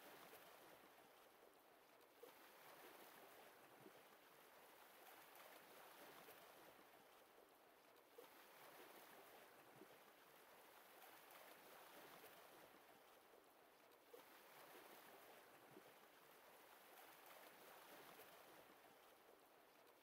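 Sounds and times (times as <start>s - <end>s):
water lapping gently: 0.0s - 20.0s.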